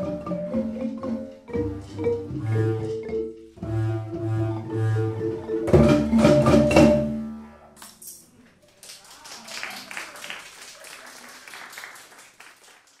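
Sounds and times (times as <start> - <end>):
marimba band chord: 0.0 - 7.6
people clapping: 7.8 - 13.0.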